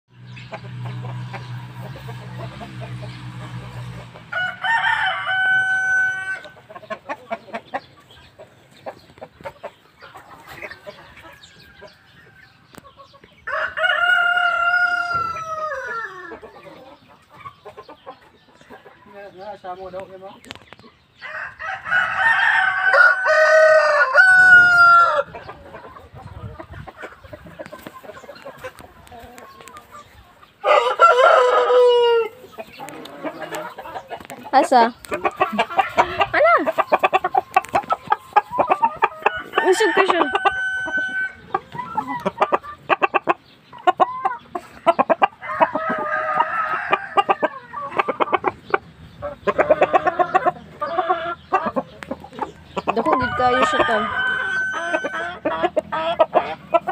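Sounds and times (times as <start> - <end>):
chicken clucking: 0.2 - 56.9
rooster crowing: 4.3 - 6.6, 13.4 - 16.4, 21.2 - 25.3, 30.6 - 32.4, 39.0 - 41.4, 45.4 - 47.9, 53.0 - 55.5.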